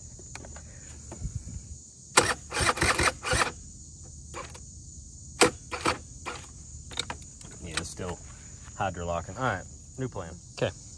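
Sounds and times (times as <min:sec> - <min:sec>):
crickets chirring: 0:00.0 - 0:10.9.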